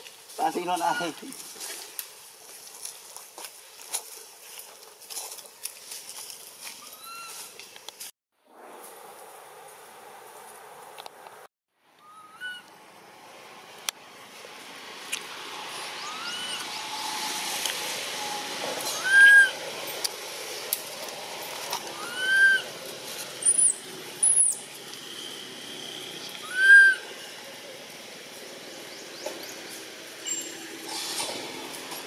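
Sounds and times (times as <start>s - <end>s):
baby monkey crying: 22.0s - 22.6s.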